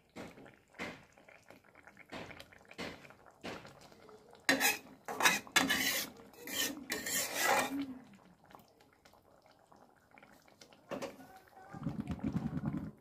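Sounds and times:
utensil scraping a cooking pot: 4.5s - 7.8s.

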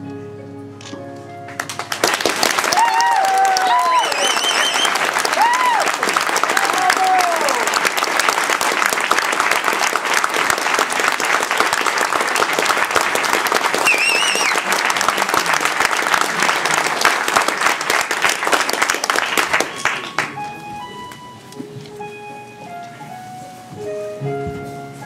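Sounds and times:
music with held notes: 0.0s - 2.4s, 19.5s - 25.0s
audience applauding: 1.5s - 20.6s
warbling whistle: 3.6s - 5.6s, 13.8s - 14.6s.

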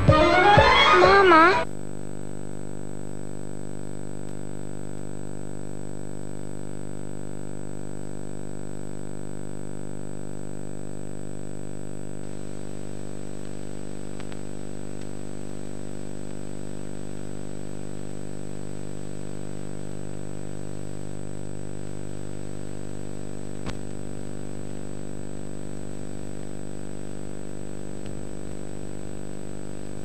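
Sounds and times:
faint click: 4.2s - 4.4s, 13.4s - 15.2s, 23.6s - 23.9s, 28.0s - 28.6s.

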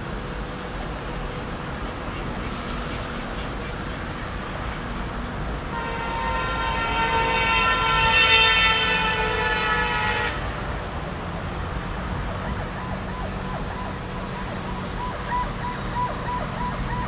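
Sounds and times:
road traffic rumble: 0.0s - 17.0s
vehicle horn blast: 5.7s - 10.6s.

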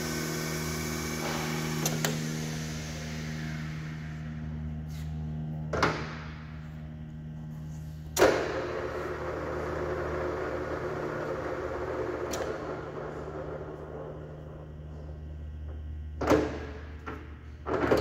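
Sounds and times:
lathe running hum: 0.0s - 18.0s.

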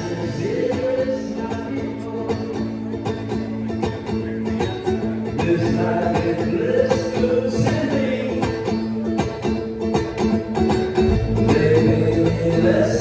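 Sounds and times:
banjo picking: 0.0s - 13.0s
guitar: 0.0s - 13.0s
drums: 5.4s - 13.0s
deep bass: 11.0s - 13.0s.

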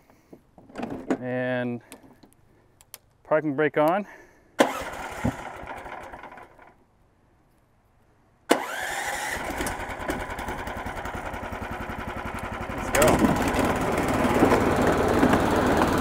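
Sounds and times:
small engine cranking: 4.6s - 6.8s, 8.5s - 16.0s
small engine idling: 4.6s - 6.8s, 8.6s - 16.0s.

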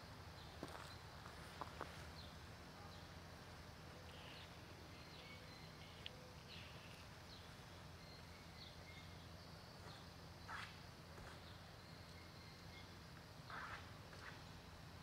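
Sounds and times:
low steady hum: 0.0s - 15.0s
faint bird chirps: 3.8s - 14.8s.

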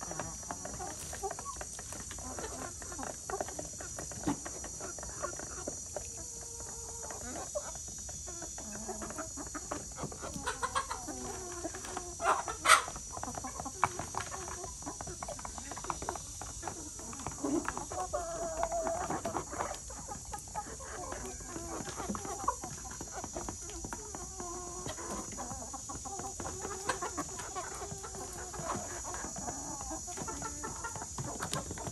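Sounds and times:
chickens clucking: 0.0s - 31.9s
loud chicken calls: 8.5s - 14.8s.

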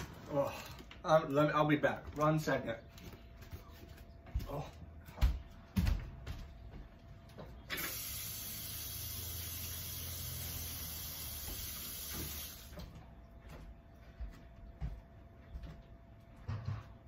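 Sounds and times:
water running from a tap: 7.7s - 12.8s.

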